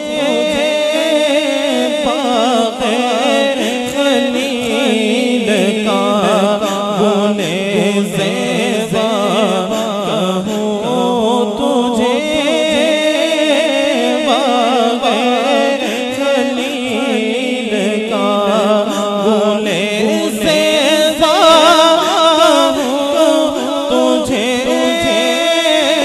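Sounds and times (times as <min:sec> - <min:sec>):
man singing unaccompanied: 0:00.0 - 0:26.0.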